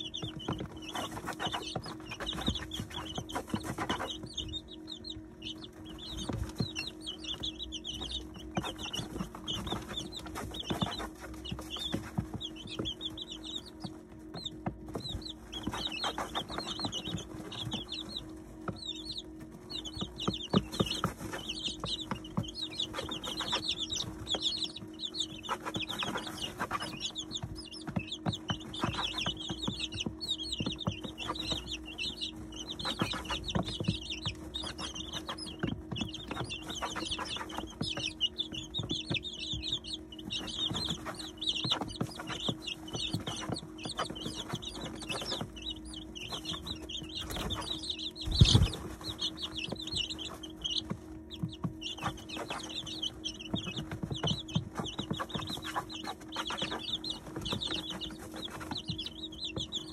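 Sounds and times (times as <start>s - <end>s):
beaks tapping on feed: 0.0s - 59.9s
chicks peeping: 0.0s - 59.9s
steady low hum: 0.0s - 59.9s.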